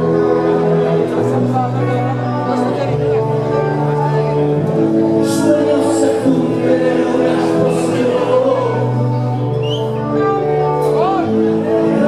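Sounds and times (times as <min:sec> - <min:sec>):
rock band playing live: 0:00.0 - 0:12.0
person singing: 0:05.1 - 0:12.0.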